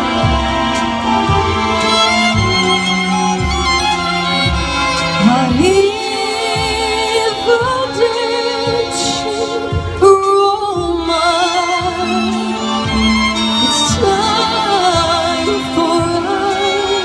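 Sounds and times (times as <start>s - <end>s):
backing music with bass line: 0.0s - 17.0s
woman singing into a microphone: 5.2s - 17.0s.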